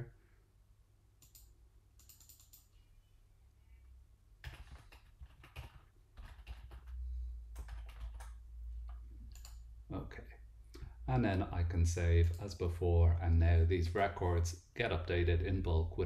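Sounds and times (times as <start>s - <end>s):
typing on computer keyboard: 1.2s - 2.7s, 4.4s - 9.6s.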